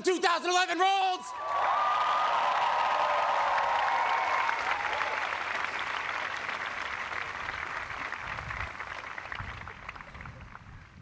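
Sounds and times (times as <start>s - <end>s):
crowd whooping: 1.3s - 6.3s
crowd applauding and cheering: 1.3s - 11.0s.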